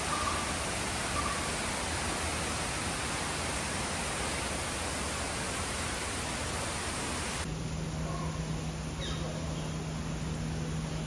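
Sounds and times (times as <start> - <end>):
waterfall rushing: 0.0 - 7.5
low steady hum: 0.0 - 11.0.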